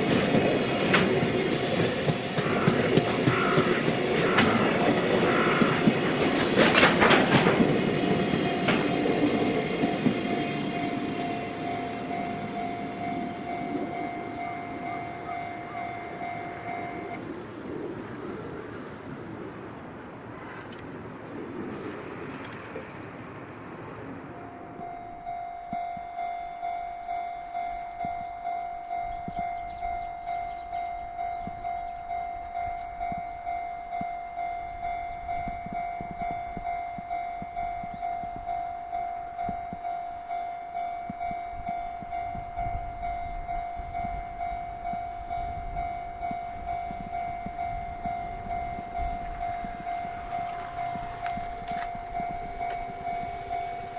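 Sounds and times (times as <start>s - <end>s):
level crossing warning bell: 0.0s - 18.9s, 24.2s - 53.9s
freight train running past: 0.0s - 53.9s.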